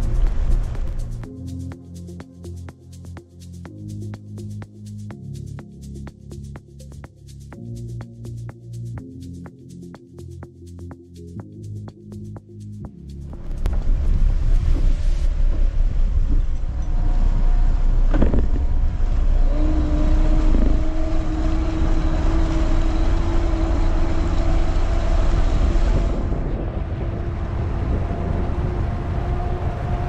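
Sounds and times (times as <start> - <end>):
wind rumble on microphone: 0.0 - 1.4, 13.1 - 30.0
steady engine hum: 0.0 - 10.8, 11.5 - 30.0
outboard motors running: 17.8 - 25.8.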